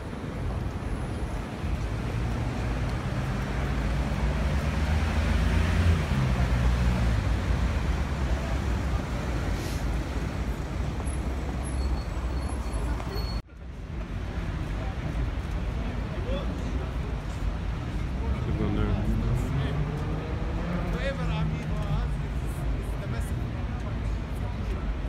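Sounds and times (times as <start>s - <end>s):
city street traffic: 0.0s - 25.0s
bus engine passing close: 1.9s - 13.4s.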